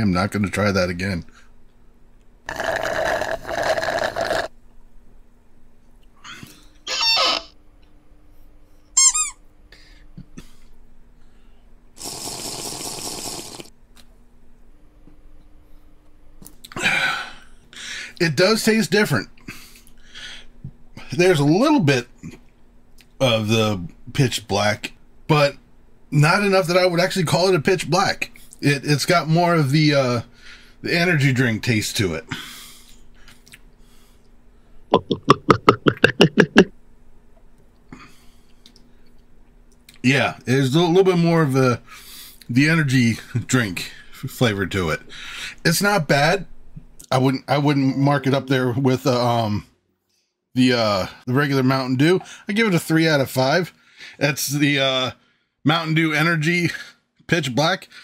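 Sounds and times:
man slurping from a can: 2.5s - 4.5s, 12.0s - 13.7s.

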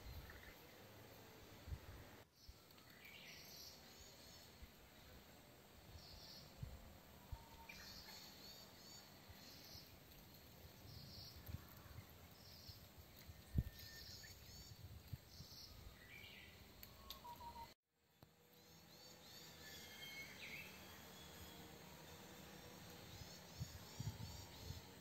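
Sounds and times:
faint woodland ambience: 0.0s - 25.0s
small bird chirping: 10.7s - 17.8s.

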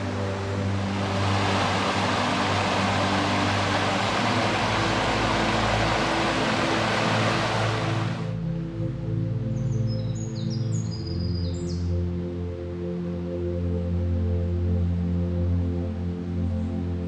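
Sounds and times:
rushing water: 0.0s - 8.4s
soft music with low notes: 0.0s - 17.0s.

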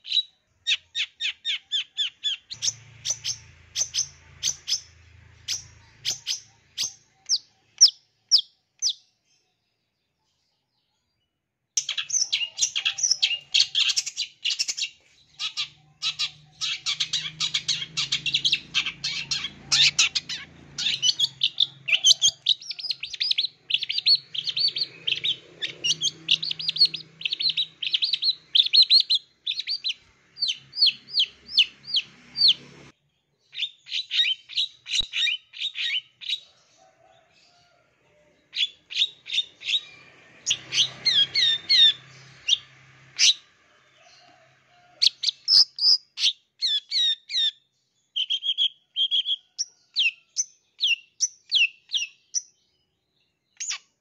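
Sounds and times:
bird singing sharp chirps: 0.0s - 9.0s, 11.8s - 32.9s, 38.6s - 43.4s.

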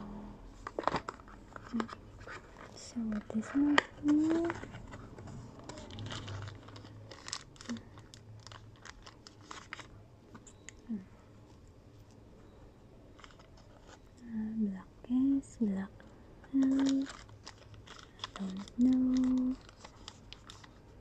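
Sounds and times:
cardboard packaging rustling: 0.6s - 10.6s, 13.1s - 14.1s, 16.5s - 21.0s.

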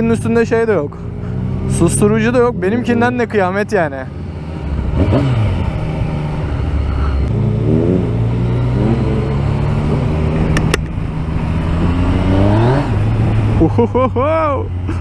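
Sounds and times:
motorcycle engine accelerating: 0.0s - 15.0s
sharp click: 10.5s - 11.0s.

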